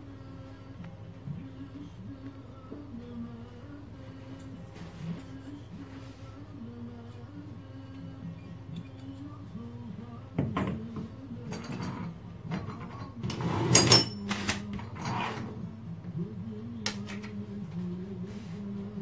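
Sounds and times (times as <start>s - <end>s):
tools clinking on wooden bench: 10.4s - 15.3s.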